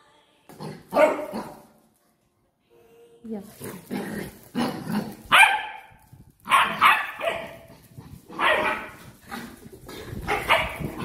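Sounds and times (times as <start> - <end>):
puppy barking: 0.9 - 1.6, 5.3 - 5.9, 6.5 - 7.7, 8.3 - 9.0, 10.3 - 11.0.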